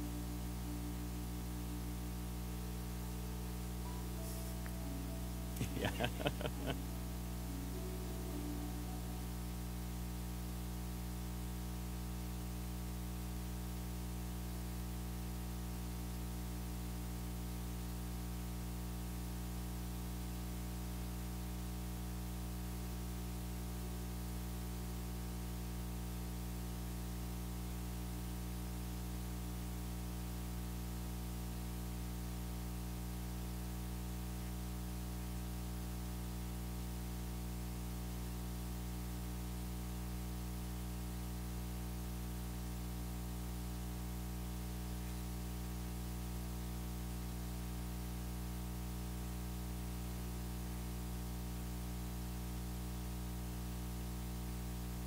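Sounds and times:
faint music: 0.0s - 11.1s
electrical hum and hiss: 0.0s - 55.0s.

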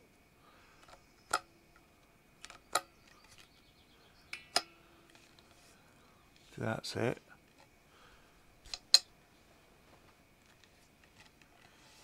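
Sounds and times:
sharp metallic clicks: 8.6s - 9.1s.

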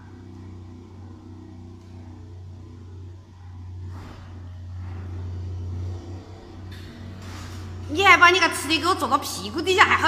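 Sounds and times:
lawn mower engine drone: 0.0s - 10.0s.

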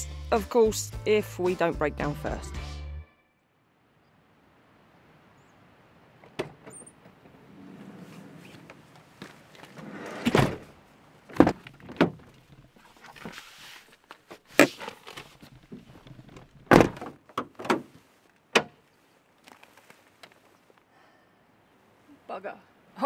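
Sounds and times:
van doors and bonnet clunking: 6.2s - 13.4s, 14.3s - 18.8s
van sliding door slamming: 6.3s - 8.8s, 9.7s - 12.3s, 16.6s - 17.9s.

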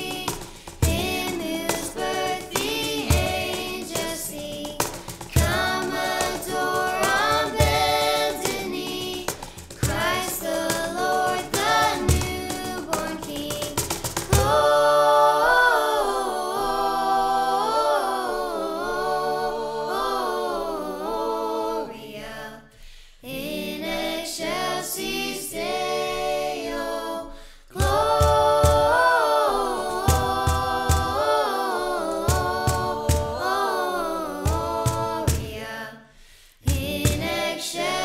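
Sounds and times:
sharp percussive beats: 0.0s - 15.0s, 27.8s - 33.8s, 34.4s - 35.7s, 36.7s - 38.0s
voices singing a cappella: 0.0s - 38.0s.

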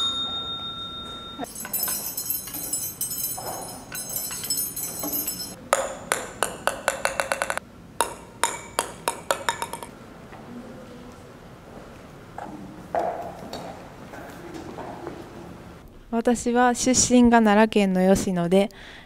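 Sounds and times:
metal rods chiming: 0.0s - 5.6s
ping-pong ball bouncing on table: 5.2s - 9.9s.

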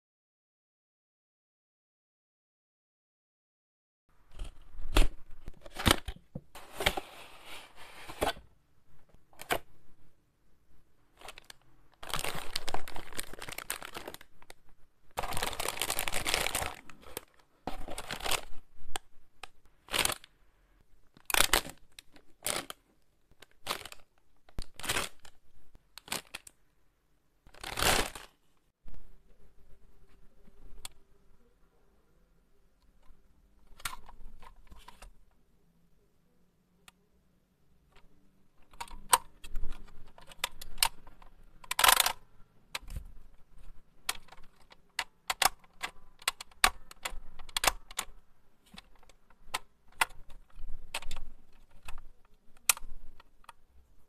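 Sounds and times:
plastic bags crinkling: 11.2s - 14.6s, 15.2s - 18.6s, 19.8s - 20.3s, 21.2s - 22.8s, 23.4s - 25.4s, 26.0s - 26.5s, 27.5s - 28.4s.

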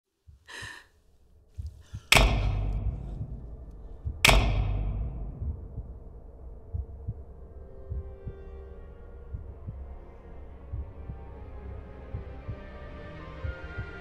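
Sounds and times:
faint low pulses: 1.3s - 14.0s
deep booming impacts: 1.9s - 8.5s.

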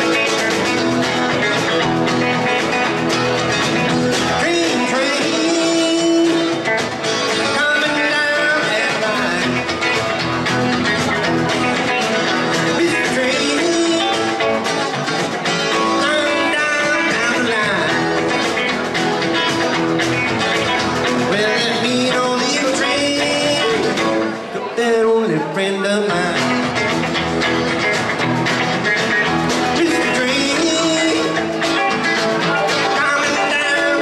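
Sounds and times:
drum kit steady beat: 0.0s - 24.5s
electric guitar lead with bent notes: 0.0s - 34.0s
rhythm guitar: 0.0s - 34.0s.

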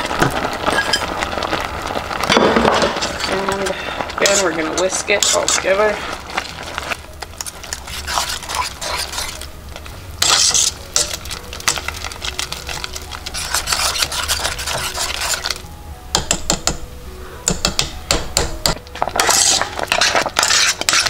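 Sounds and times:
whisk scraping metal pot: 4.2s - 9.5s, 10.2s - 15.6s, 19.0s - 21.0s.

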